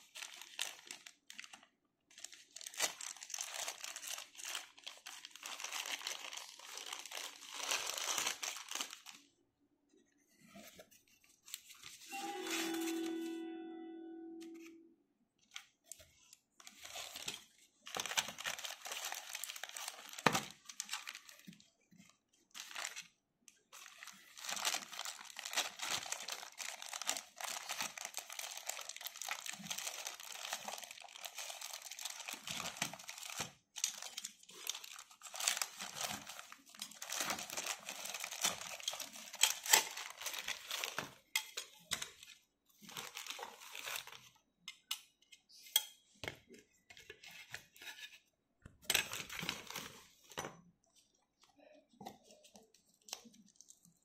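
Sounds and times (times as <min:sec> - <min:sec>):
plastic bags crinkling: 0:00.0 - 0:09.3, 0:16.6 - 0:21.6, 0:22.5 - 0:23.1, 0:23.8 - 0:44.3.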